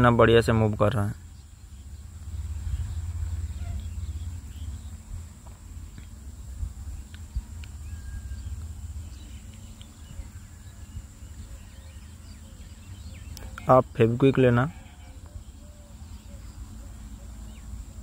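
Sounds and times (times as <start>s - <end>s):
armature spinning low rumble: 0.0s - 14.4s.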